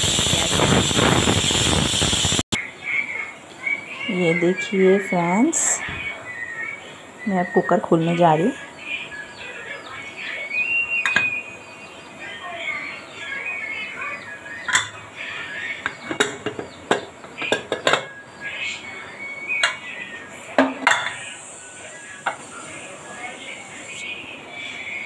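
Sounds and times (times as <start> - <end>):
faint bird chirps: 2.6 - 20.6.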